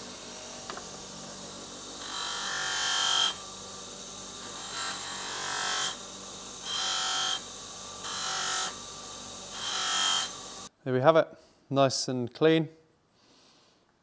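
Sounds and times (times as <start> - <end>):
buffing wheel running: 0.0 - 10.7.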